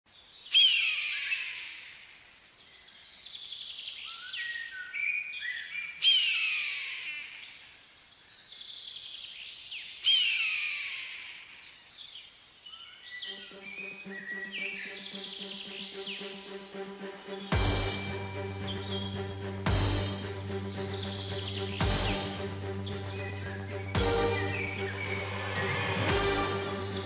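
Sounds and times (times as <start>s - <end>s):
small birds chirping: 0.1s - 27.0s
music: 13.3s - 27.0s.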